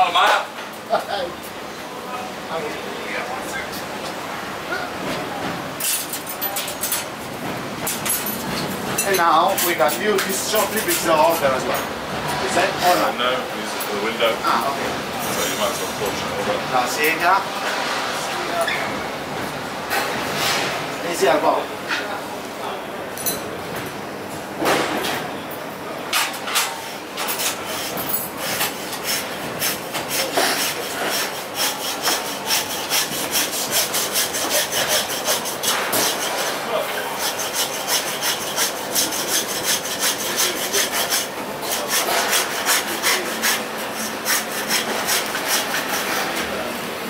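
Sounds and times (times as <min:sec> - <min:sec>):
bone saw cutting through bone: 0:29.0 - 0:36.5, 0:37.1 - 0:46.1.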